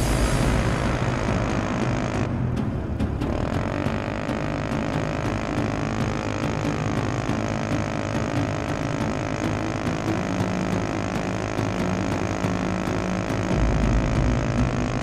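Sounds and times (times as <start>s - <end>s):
quad bike engine running: 0.0s - 15.0s.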